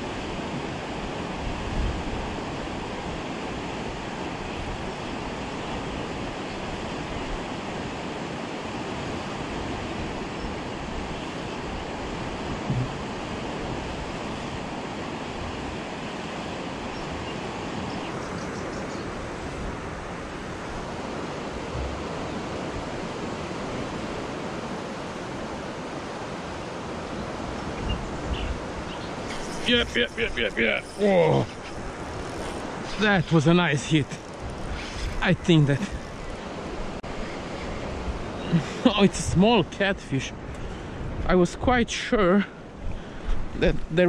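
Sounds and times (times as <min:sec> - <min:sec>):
wind on microphone: 0:00.0 - 0:07.9, 0:08.8 - 0:15.9, 0:27.0 - 0:33.4, 0:34.0 - 0:38.7, 0:42.6 - 0:44.0
water rushing over weir: 0:00.0 - 0:17.9, 0:19.0 - 0:40.2.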